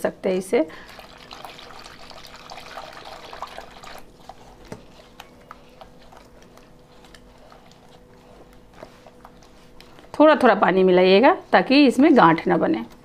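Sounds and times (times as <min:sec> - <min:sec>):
wet squelching: 0:00.8 - 0:10.2.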